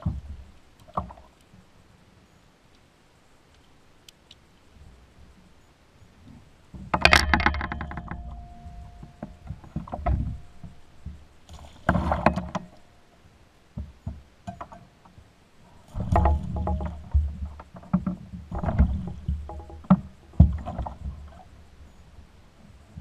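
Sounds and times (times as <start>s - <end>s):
low thuds: 6.7s - 12.8s
fishing gear clattering on kayak hull: 6.8s - 12.8s, 15.9s - 21.6s.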